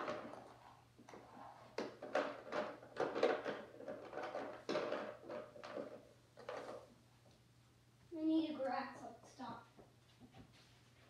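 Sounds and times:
objects knocking and clattering: 0.0 - 7.0.

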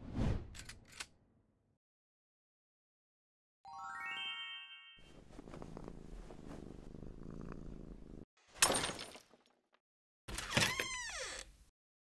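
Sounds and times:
cat purring: 5.1 - 8.3.

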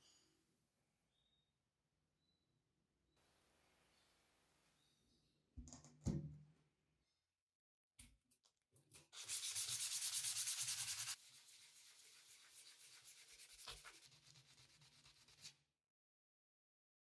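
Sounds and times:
sandpaper scrubbing on steel: 9.2 - 15.6.

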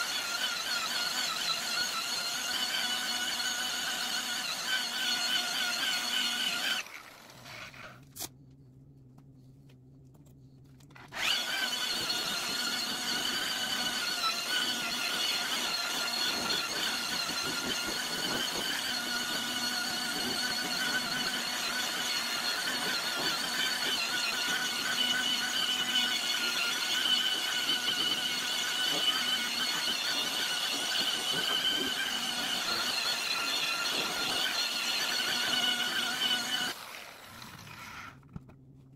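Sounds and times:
electric polisher whining: 11.2 - 38.2.

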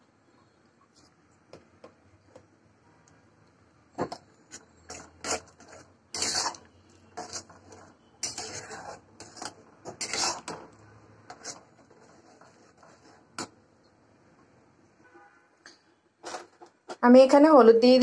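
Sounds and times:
metal spoon scraping metal pot: 4.5 - 13.6, 16.2 - 17.0.

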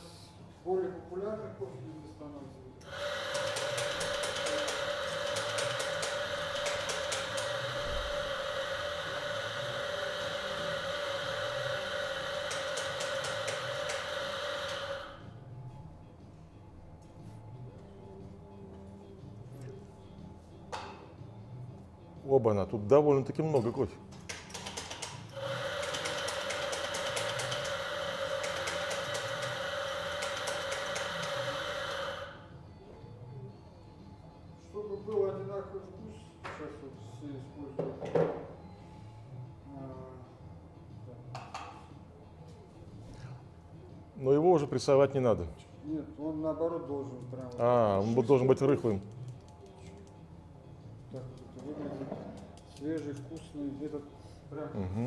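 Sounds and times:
coffee grinder whirring: 2.8 - 15.2, 25.3 - 32.4.

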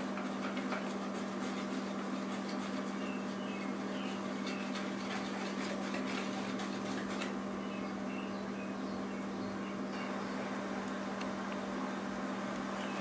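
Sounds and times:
batter stirred in plastic bowl: 0.0 - 7.5
steady low hum: 0.0 - 13.0.

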